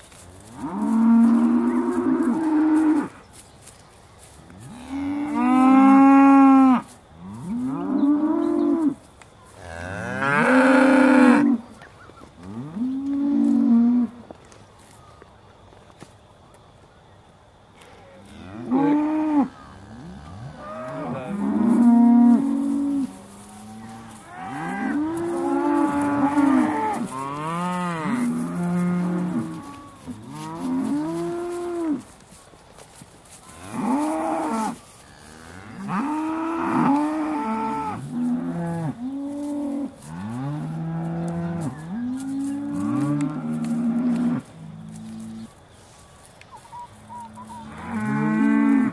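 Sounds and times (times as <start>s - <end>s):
cows mooing: 9.7s - 11.6s, 18.3s - 32.0s, 47.2s - 48.9s.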